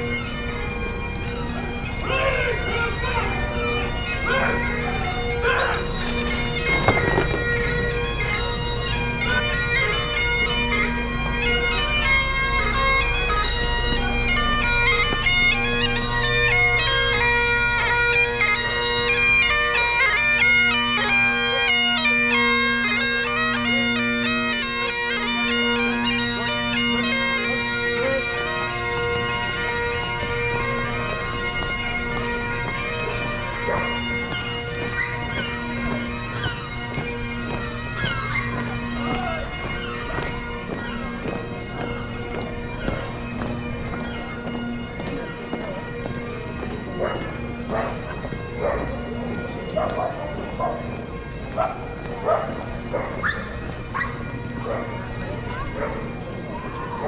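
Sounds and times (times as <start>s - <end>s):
bagpipe playing a march: 0.0s - 57.0s.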